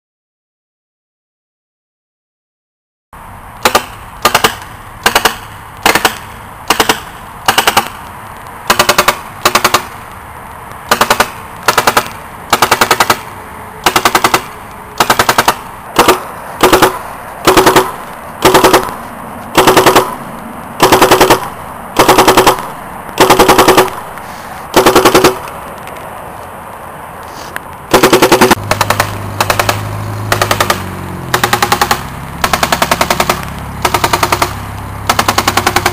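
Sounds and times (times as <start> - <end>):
vehicle engine running: 3.2 - 26.6, 27.3 - 35.9
paintball gun firing rapid bursts: 3.6 - 8.0, 8.7 - 10.0, 10.9 - 19.0, 19.6 - 20.2, 20.8 - 24.0, 24.7 - 25.4, 27.9 - 35.9.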